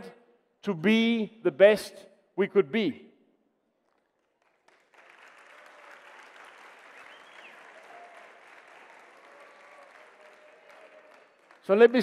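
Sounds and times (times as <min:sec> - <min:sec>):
audience applauding: 0:03.8 - 0:12.0.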